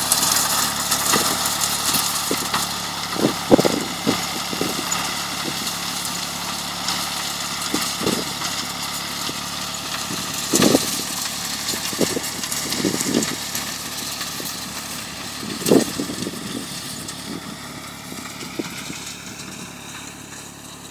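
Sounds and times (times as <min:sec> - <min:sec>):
tractor engine running: 0:00.0 - 0:20.9.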